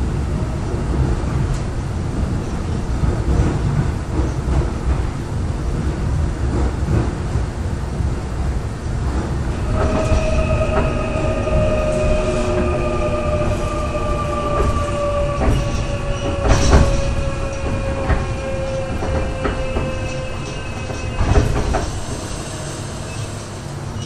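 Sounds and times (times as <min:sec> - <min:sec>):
subway train rumble: 0:00.0 - 0:24.0.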